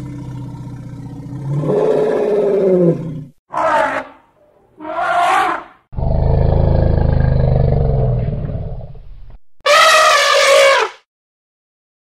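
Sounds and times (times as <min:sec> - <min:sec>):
elephant low rumble: 0:00.0 - 0:03.4, 0:06.0 - 0:09.4
elephant trumpeting: 0:03.5 - 0:05.8, 0:09.7 - 0:11.0.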